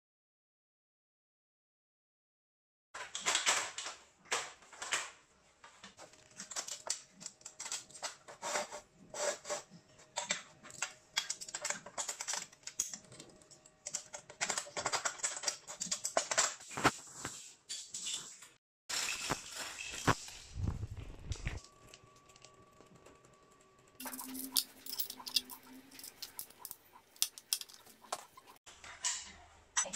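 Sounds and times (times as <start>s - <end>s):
chain links clinking: 24.0s - 28.0s
metal tripod clicks and knocks: 24.0s - 28.2s.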